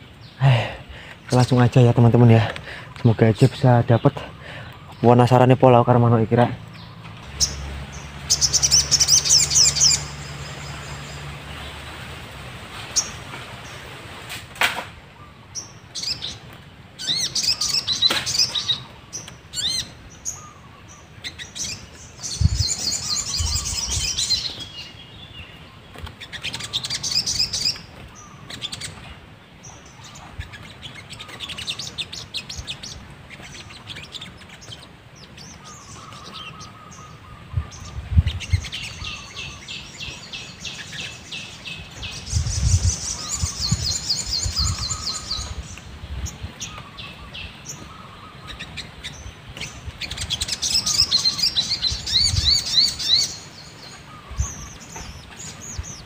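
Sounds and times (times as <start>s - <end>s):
birds trilling chirps: 0.0s - 56.0s.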